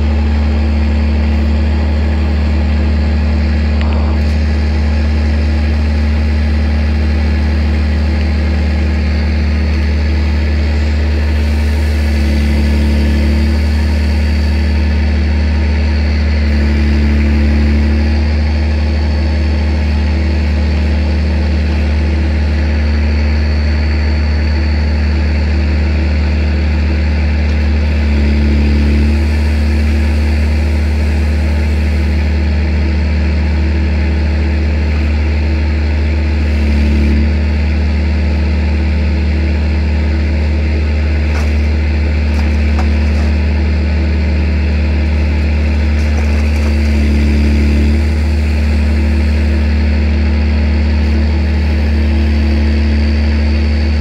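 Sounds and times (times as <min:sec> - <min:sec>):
vehicle engine running: 0:00.0 - 0:54.0.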